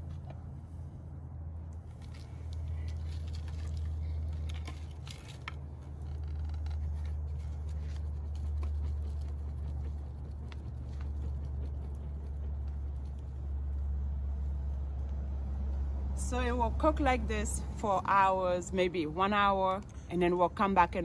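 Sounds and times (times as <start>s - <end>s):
low rumble of fanned fire: 0.0s - 20.8s
wood fire crackling: 1.9s - 16.3s.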